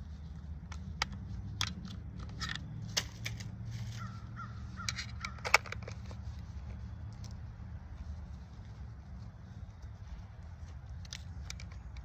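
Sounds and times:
harsh bird calls: 0:03.9 - 0:05.5.

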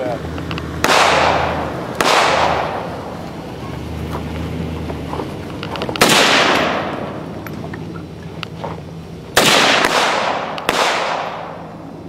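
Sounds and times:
rifle shots with echo: 0:00.8 - 0:03.1, 0:06.0 - 0:07.2, 0:09.4 - 0:11.7.

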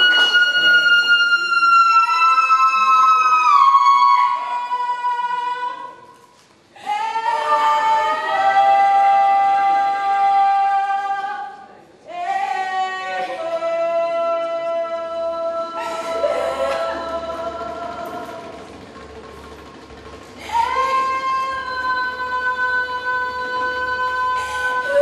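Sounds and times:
high voice singing: 0:20.4 - 0:25.0.

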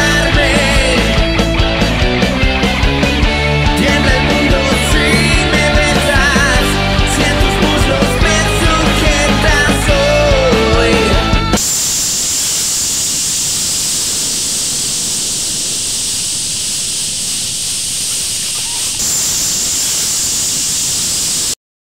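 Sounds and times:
rock band music: 0:00.0 - 0:11.7
static hiss: 0:11.6 - 0:21.6.

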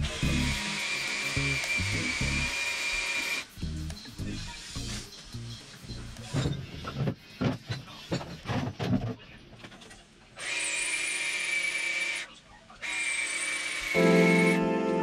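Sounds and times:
power drill whining: 0:00.0 - 0:03.5, 0:10.4 - 0:12.2, 0:12.8 - 0:14.7
objects knocking and thumping: 0:06.3 - 0:09.9.

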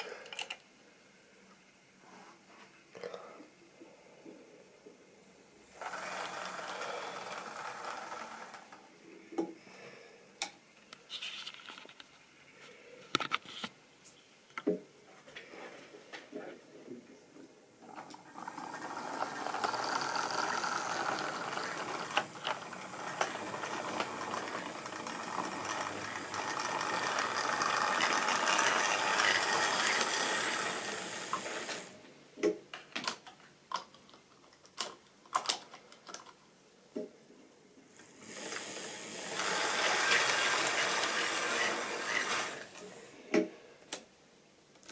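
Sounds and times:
model train clattering on track: 0:19.2 - 0:30.7.

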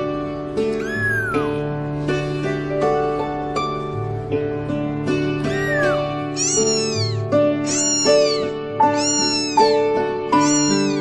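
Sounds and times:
kitten mewing: 0:00.7 - 0:01.6, 0:05.4 - 0:11.0.

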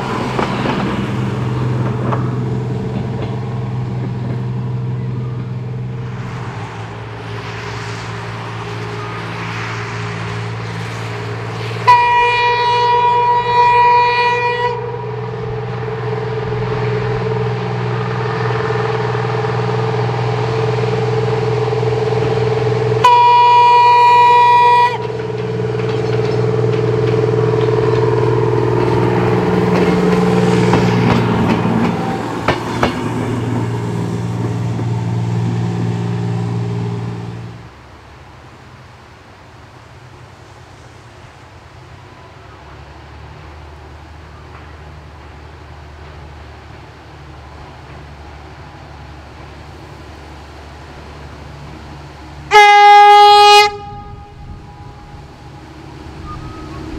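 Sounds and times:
diesel rail motor engine running: 0:00.0 - 0:56.9
train horn blasts: 0:11.8 - 0:18.2, 0:22.8 - 0:30.9, 0:52.5 - 0:56.9.

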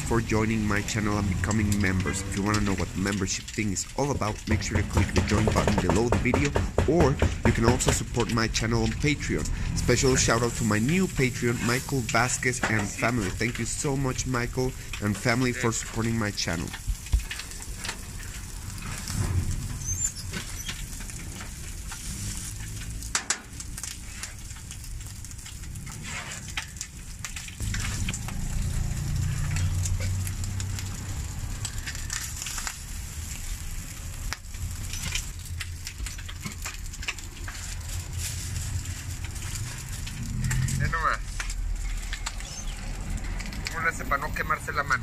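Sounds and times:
meat sizzling on a griddle: 0:00.0 - 0:05.6, 0:08.5 - 0:44.9
metal blade chopping on griddle: 0:04.6 - 0:08.1
low rumble: 0:08.0 - 0:23.1, 0:27.5 - 0:44.4.

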